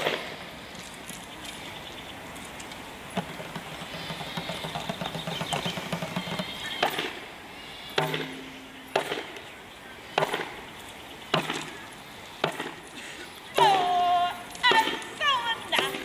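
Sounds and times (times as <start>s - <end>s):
sharp knocks: 8.0s - 9.4s, 10.2s - 10.6s, 11.3s - 11.8s, 12.4s - 12.8s.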